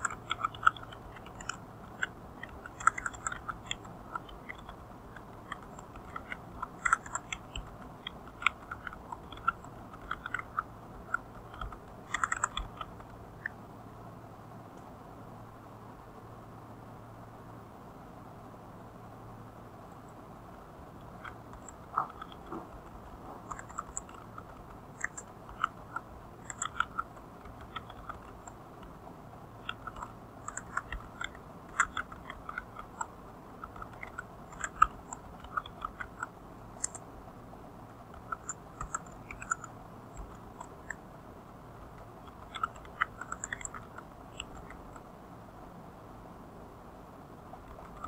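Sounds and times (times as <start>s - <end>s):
keyboard typing: 0.0s - 13.6s, 21.0s - 37.1s, 38.0s - 41.0s, 41.8s - 45.1s, 47.6s - 48.0s
faint steady hiss: 0.0s - 48.0s.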